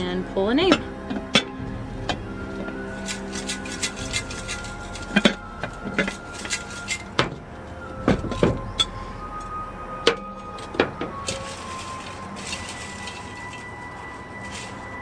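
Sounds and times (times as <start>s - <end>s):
paper slips rattling in prop: 2.9s - 7.3s, 11.2s - 15.0s.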